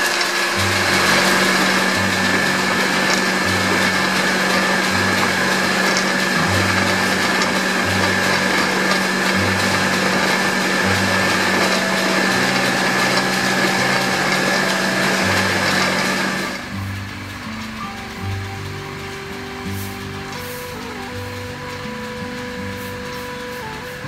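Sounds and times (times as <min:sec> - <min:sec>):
beans rattling in roasting pan: 0:00.0 - 0:21.0
low throb: 0:00.0 - 0:24.0
motor hum: 0:00.0 - 0:24.0.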